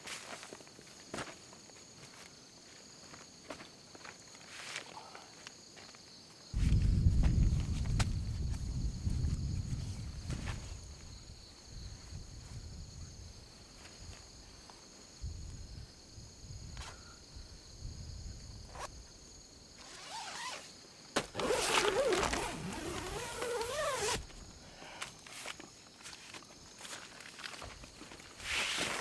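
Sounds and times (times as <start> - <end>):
crickets trilling: 0.0 - 29.0
zipper being pulled: 19.8 - 20.7, 21.4 - 24.2.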